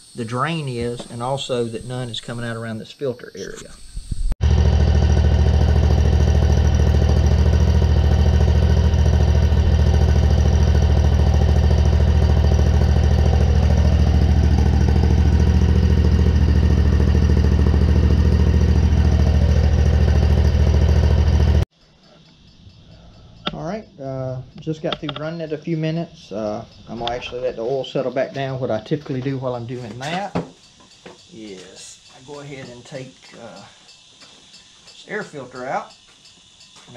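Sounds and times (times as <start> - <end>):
mower engine running: 4.4 - 21.6.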